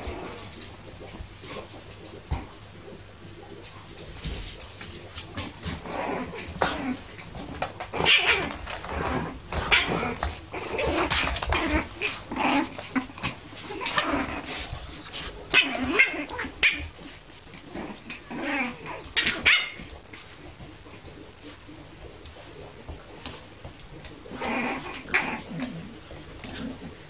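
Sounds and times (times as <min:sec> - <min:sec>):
puppy barking: 0:19.1 - 0:19.9.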